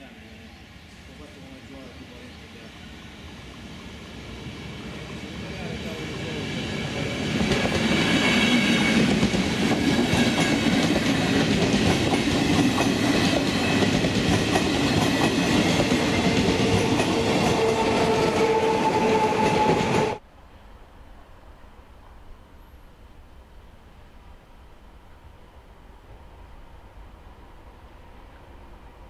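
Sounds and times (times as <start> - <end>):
train wheels clattering over rails: 5.6 - 20.2.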